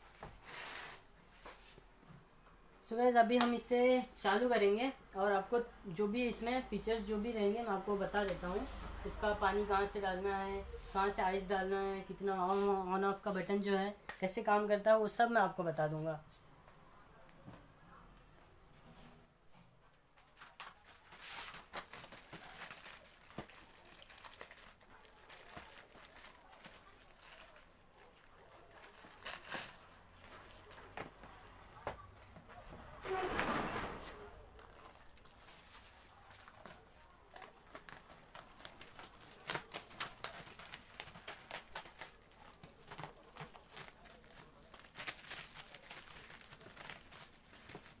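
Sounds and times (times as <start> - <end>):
plastic wrapping crinkling: 0.0 - 1.8, 20.1 - 31.9, 33.0 - 48.0.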